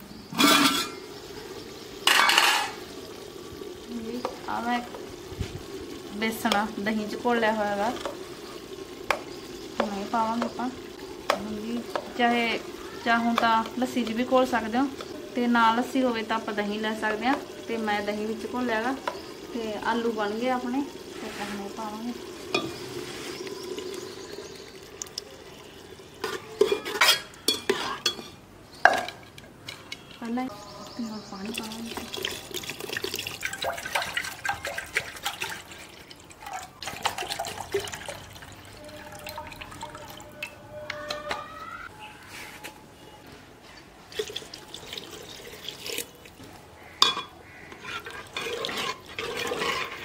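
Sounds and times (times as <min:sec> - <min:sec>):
batter sizzling in a pot: 0:00.0 - 0:36.1, 0:44.4 - 0:50.0
steel ladle scraping and clinking: 0:00.4 - 0:01.0, 0:02.0 - 0:02.8, 0:22.4 - 0:23.8, 0:26.2 - 0:30.2, 0:47.0 - 0:50.0
water pouring into liquid: 0:00.9 - 0:27.5, 0:30.8 - 0:40.6, 0:44.0 - 0:46.5, 0:47.4 - 0:50.0.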